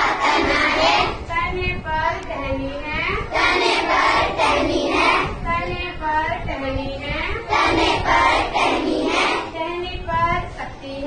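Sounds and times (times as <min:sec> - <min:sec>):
children singing together: 0:00.0 - 0:01.2, 0:03.3 - 0:05.4, 0:07.5 - 0:09.5.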